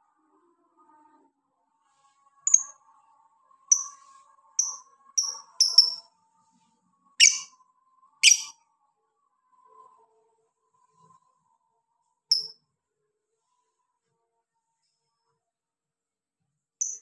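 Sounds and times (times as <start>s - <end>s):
high-pitched bird chirps: 2.5s - 2.8s, 3.7s - 4.0s, 4.6s - 6.0s, 7.2s - 7.5s, 8.2s - 8.5s, 12.3s - 12.5s
harsh bird squawks: 7.2s - 7.5s, 8.2s - 8.5s.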